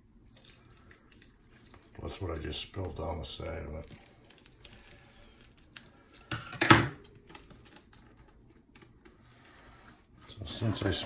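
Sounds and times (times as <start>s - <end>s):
plastic clicks and rustles: 3.8s - 9.2s.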